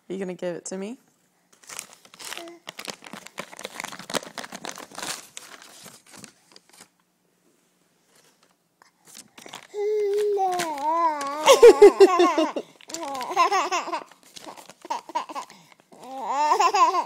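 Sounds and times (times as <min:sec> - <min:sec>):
magazine paper crinkling: 0:01.5 - 0:07.0, 0:08.2 - 0:15.9.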